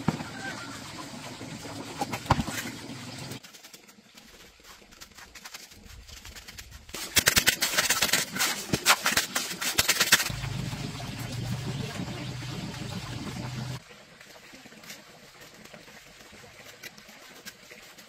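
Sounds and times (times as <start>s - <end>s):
trowel scraping cement mix: 4.3s - 10.4s.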